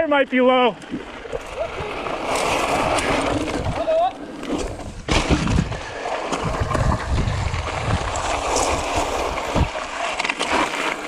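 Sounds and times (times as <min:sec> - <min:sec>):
bike tyres rolling on rock: 0:00.0 - 0:11.0
bike rattling: 0:00.6 - 0:11.0
wind buffeting microphone: 0:04.8 - 0:09.8.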